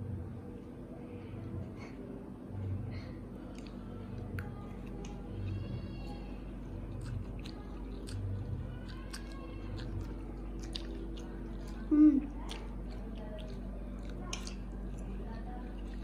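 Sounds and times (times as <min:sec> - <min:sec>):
chewing and lip smacks: 0:03.4 - 0:05.6, 0:06.8 - 0:16.0.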